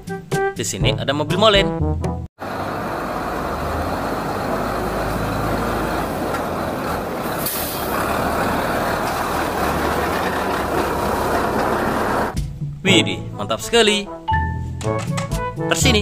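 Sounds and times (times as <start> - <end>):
diesel truck engine driving past: 2.4 - 12.4
air brake hiss: 7.2 - 8.1.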